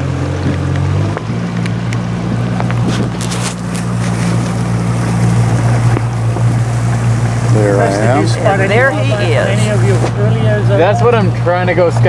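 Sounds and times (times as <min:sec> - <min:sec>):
outboard motor humming: 0:00.0 - 0:12.0
water and air noise: 0:00.0 - 0:12.0.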